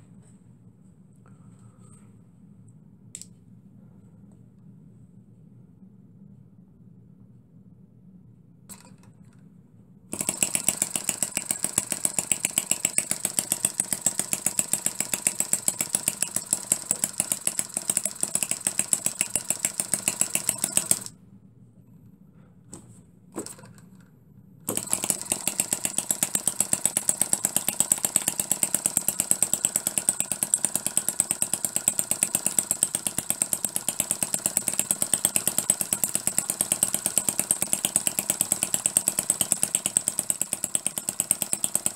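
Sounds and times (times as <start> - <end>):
miniature engine running: 10.1 - 21.1, 24.7 - 41.9.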